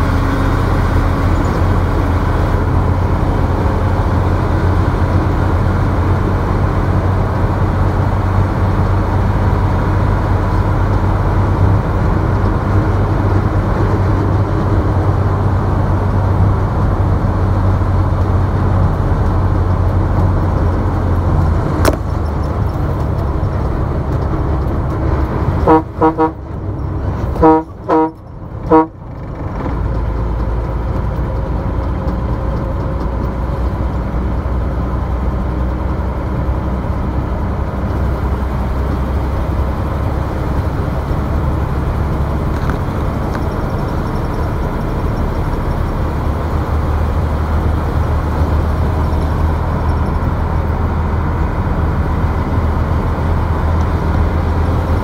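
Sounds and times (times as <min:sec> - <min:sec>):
road and engine rumble: 0:00.0 - 0:55.0
vehicle horn toots: 0:25.6 - 0:26.5, 0:27.3 - 0:29.0.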